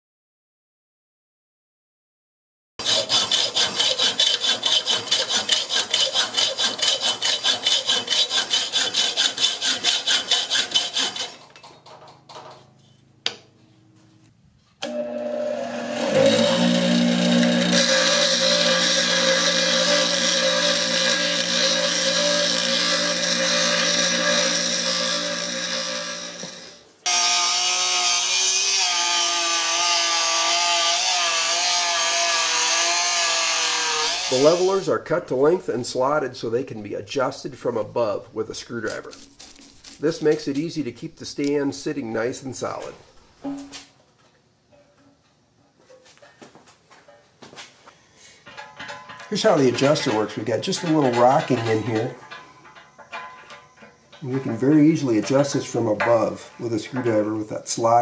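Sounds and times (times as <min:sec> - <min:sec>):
rotary tool cutting steel: 0:02.8 - 0:11.5, 0:14.8 - 0:34.9, 0:48.4 - 0:57.3
bench grinder running: 0:14.8 - 0:34.8.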